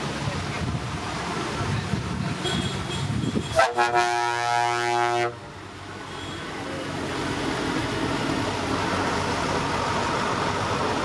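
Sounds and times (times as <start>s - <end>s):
multi-tone air horn blast: 3.5s - 5.4s.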